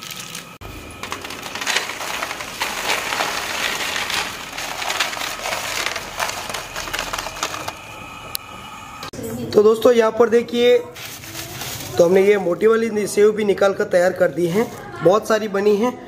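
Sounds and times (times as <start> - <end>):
crunchy snack crackling onto paper: 0.0 - 7.8.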